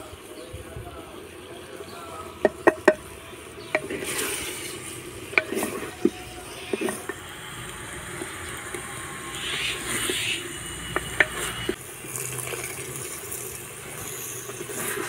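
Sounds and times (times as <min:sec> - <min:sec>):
utensil knocking against pot: 0:02.4 - 0:03.0, 0:03.7 - 0:04.1, 0:05.3 - 0:07.2
food sizzling in a pot: 0:02.4 - 0:15.0.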